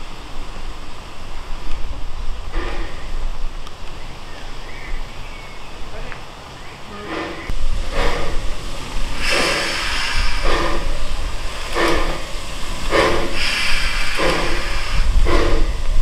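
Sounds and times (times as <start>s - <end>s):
steam locomotive chuffing: 0.0s - 4.4s, 5.8s - 16.0s
steam hiss: 0.0s - 16.0s
low rumble: 6.9s - 16.0s.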